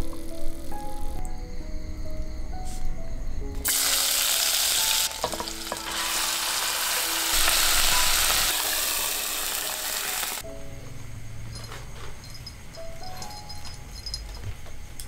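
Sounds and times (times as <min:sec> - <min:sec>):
fish sizzling in hot oil: 0:03.6 - 0:10.4.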